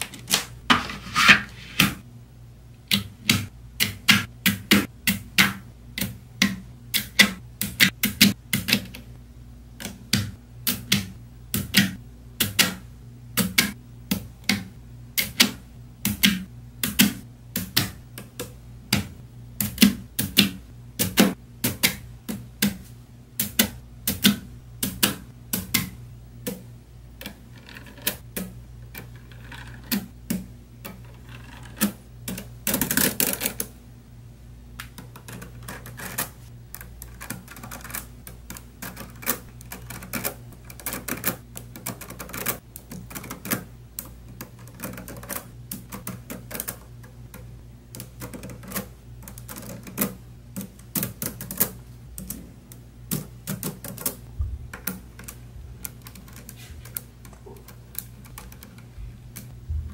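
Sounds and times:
magnetic balls clicking: 2.8 - 9.2, 34.8 - 59.7.

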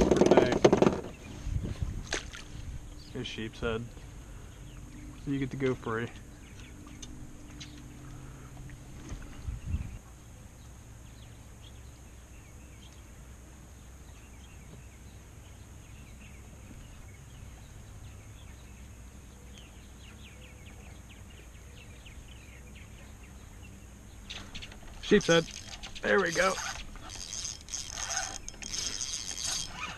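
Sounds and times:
low steady rumble: 0.0 - 29.9.

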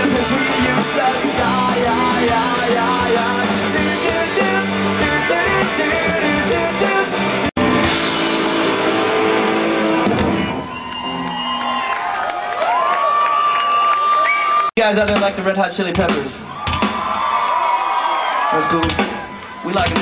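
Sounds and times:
live rock band playing: 0.0 - 11.8, 18.6 - 20.0.

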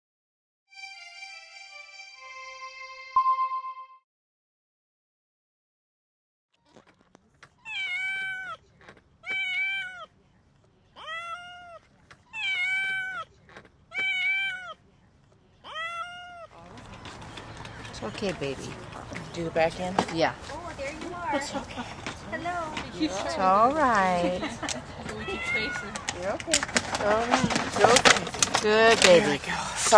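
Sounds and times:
cat meowing: 7.6 - 8.6, 9.2 - 10.1, 11.0 - 13.3, 13.9 - 14.8, 15.6 - 16.6, 25.2 - 26.1.

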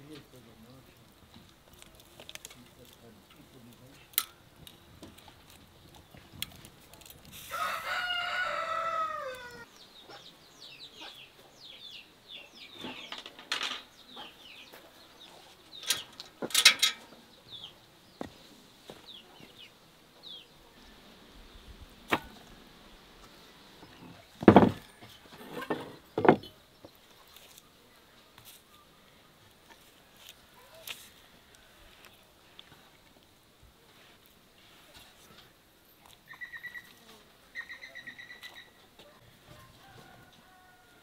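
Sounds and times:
small birds chirping: 0.0 - 7.1, 8.2 - 25.2, 25.8 - 33.4, 34.0 - 39.6
rooster crowing: 7.4 - 9.7, 39.4 - 41.0.

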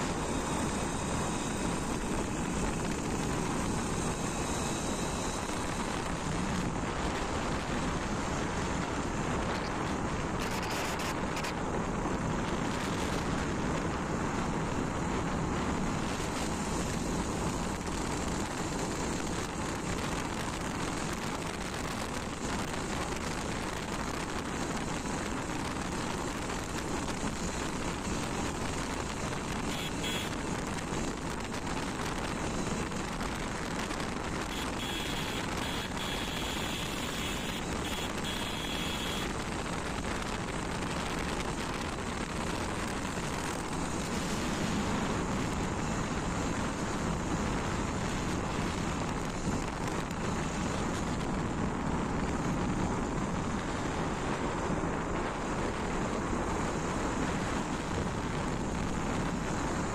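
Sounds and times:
road noise: 0.0 - 59.9
wind rushing over microphone: 0.0 - 59.9
motorcycle engine: 31.2 - 39.3.

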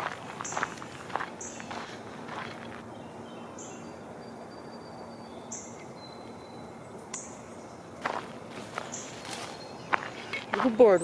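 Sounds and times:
footstep: 0.0 - 2.9, 8.0 - 10.9
songbirds chirping: 0.0 - 11.0.

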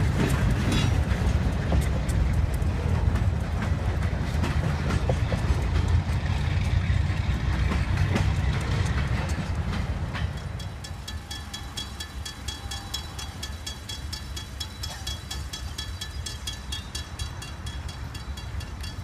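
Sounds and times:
freight train rumbling past: 0.0 - 19.0
train wheels clicking on rail: 0.0 - 19.0
crossing bell ringing: 8.6 - 19.0.

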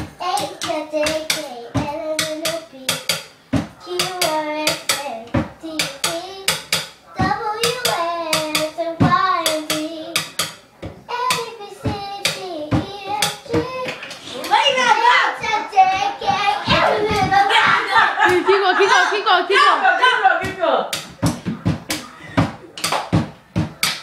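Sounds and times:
drumsticks hitting wooden cabinet: 0.0 - 14.8, 20.4 - 24.0
girl singing: 0.0 - 20.0.

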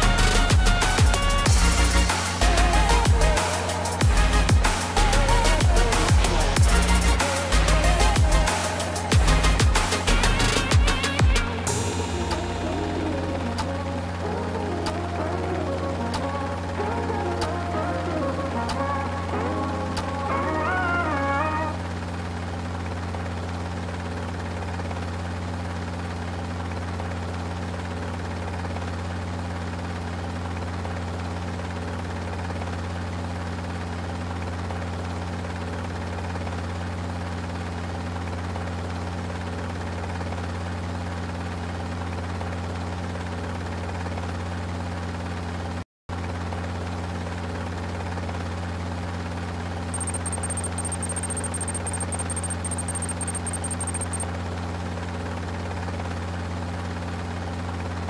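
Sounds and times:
helicopter rotor and engine: 21.8 - 45.6, 48.0 - 56.2
rapid high-pitched ticking: 50.0 - 54.2.

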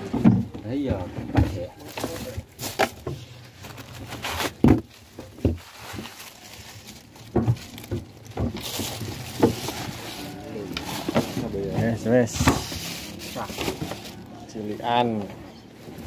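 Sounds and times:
knocks and thumps in a cool box: 0.0 - 3.3, 4.0 - 6.1, 7.2 - 10.0
plastic bags rustling: 1.2 - 16.0.

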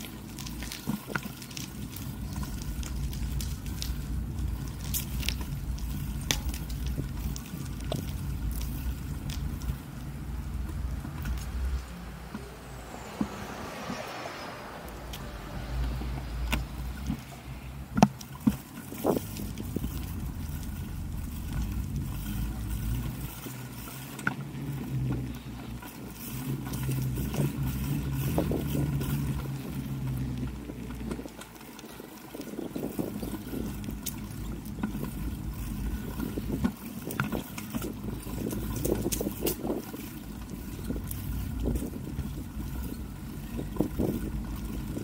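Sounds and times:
wheels rolling over pavement: 0.0 - 45.0
wind on microphone: 8.0 - 22.2, 26.6 - 31.2, 32.3 - 45.0.

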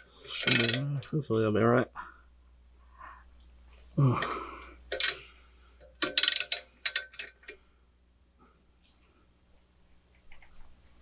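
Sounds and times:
socket ratchet clicking: 0.4 - 0.8, 4.9 - 5.2, 5.9 - 7.4.

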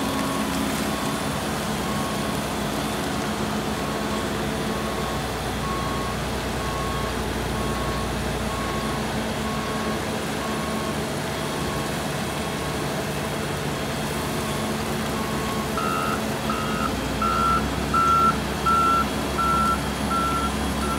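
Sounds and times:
heavy machinery engines running: 0.0 - 20.9
backup alarm beeping: 15.2 - 20.9
higher backup alarm beeping: 15.2 - 20.9.

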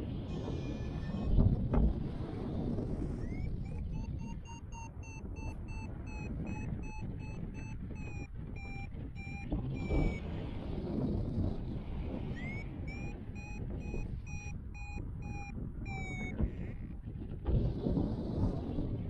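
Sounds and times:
electronic beeper beeping: 3.2 - 10.2, 12.4 - 16.4.

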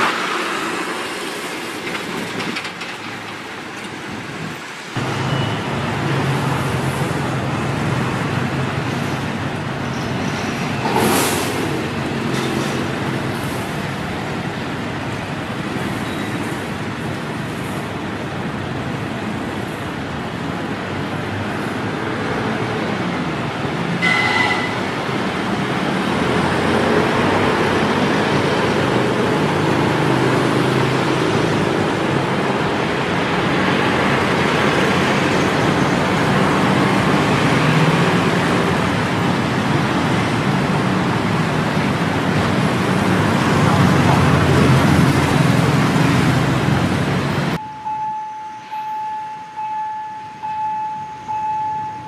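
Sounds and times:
vehicles passing: 0.0 - 52.0
brief high-pitched tone: 47.6 - 52.0.

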